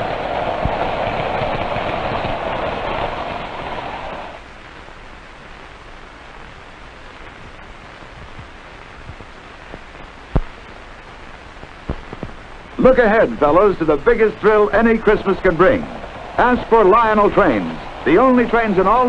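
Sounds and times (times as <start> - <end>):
film soundtrack hiss: 0.0 - 19.0.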